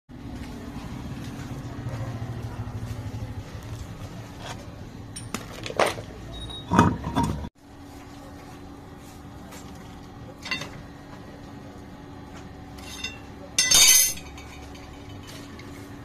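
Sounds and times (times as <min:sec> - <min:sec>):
low engine hum: 0:00.1 - 0:06.6.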